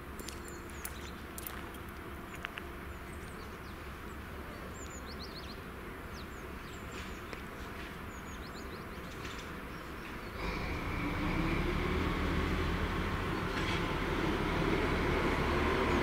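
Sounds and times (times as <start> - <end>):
small birds chirping: 0.2 - 10.8.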